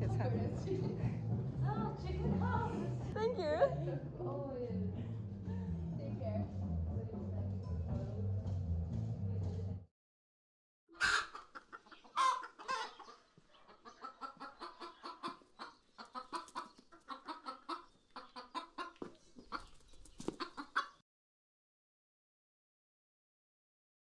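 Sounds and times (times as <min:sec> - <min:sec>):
chicken clucking: 0:10.9 - 0:21.0.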